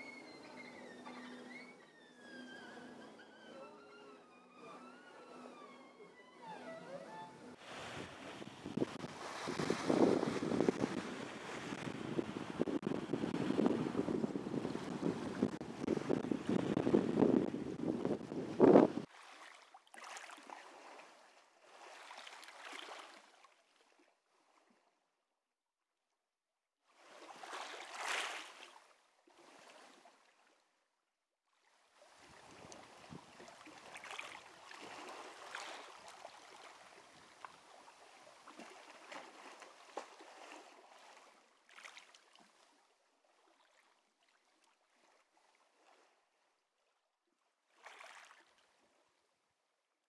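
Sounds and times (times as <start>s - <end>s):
small waves washing over pebbles: 7.6s - 16.9s, 19.0s - 23.5s, 27.0s - 30.2s, 31.9s - 42.8s.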